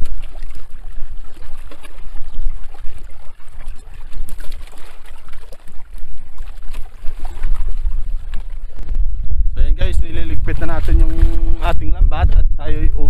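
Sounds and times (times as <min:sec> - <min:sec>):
water splashing and trickling: 0:00.0 - 0:12.1
low rumble: 0:07.2 - 0:13.0.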